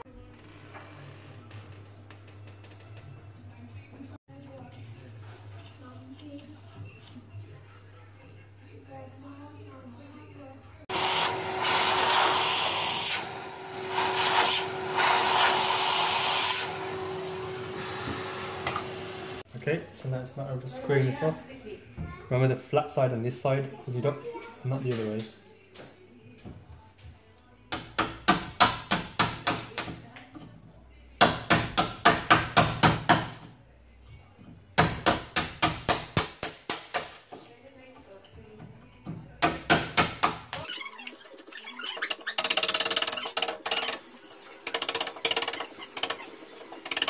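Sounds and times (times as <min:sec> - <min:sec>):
vacuum cleaner running: 0:10.9 - 0:19.5.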